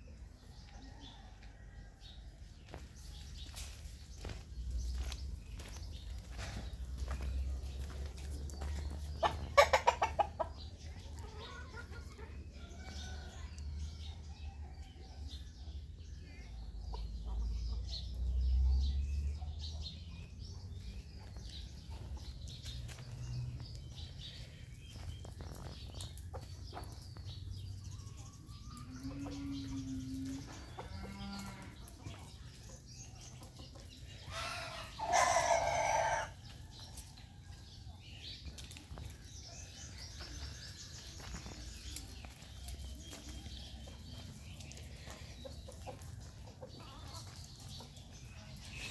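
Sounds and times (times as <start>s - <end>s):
chickens clucking: 0.1s - 48.9s.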